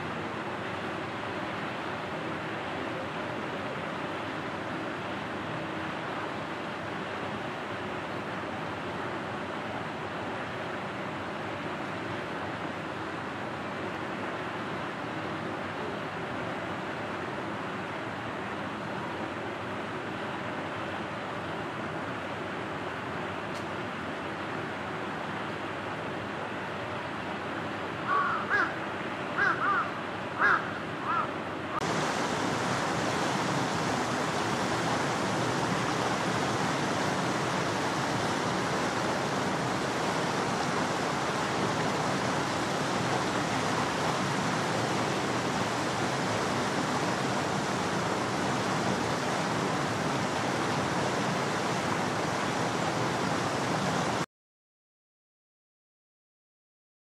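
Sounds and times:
outdoor background hiss: 0.0 - 54.3
crow cawing: 28.1 - 28.8, 29.4 - 31.4
loud even rushing noise: 31.8 - 54.2.

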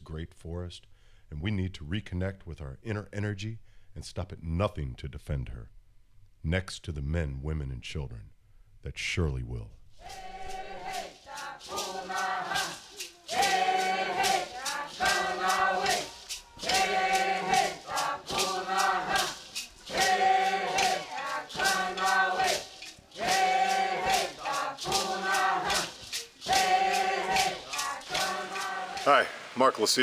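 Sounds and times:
rattle shaken in a beat: 9.9 - 29.9
group of voices chanting: 10.0 - 29.6.

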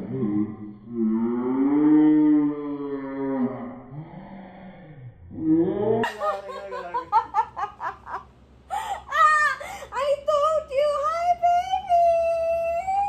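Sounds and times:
women laughing: 6.0 - 10.0.

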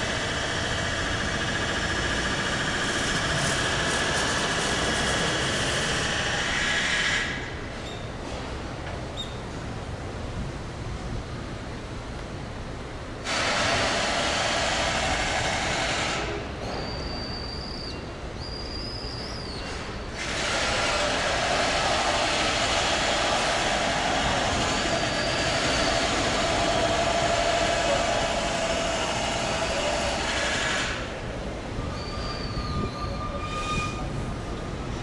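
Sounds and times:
loud mechanical rushing noise: 0.0 - 8.8, 13.1 - 16.9, 19.6 - 32.5.

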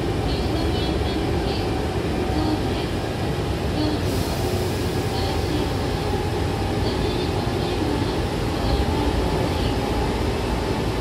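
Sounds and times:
train rumbling inside car: 0.0 - 11.0.

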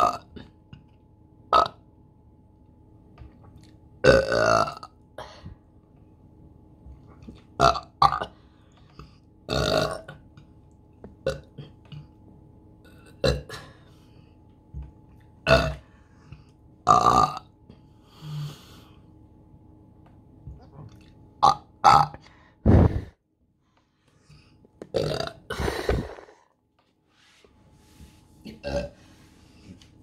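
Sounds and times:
woman burping: 13.0 - 13.7, 15.5 - 15.8, 25.0 - 26.4.

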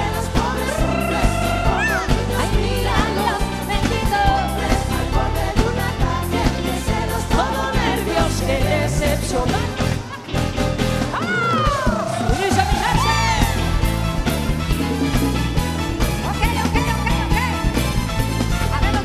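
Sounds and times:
person singing: 0.0 - 10.2
live pop band playing: 0.0 - 19.0.

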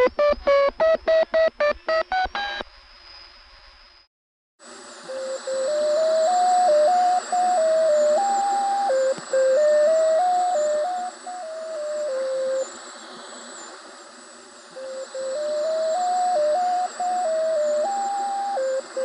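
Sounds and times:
electronic tuning tones: 0.0 - 2.6, 5.1 - 12.7, 14.8 - 19.0
radio static hiss: 0.0 - 2.7, 4.6 - 19.0
faint wavering whistle: 4.9 - 13.7, 14.6 - 19.0.

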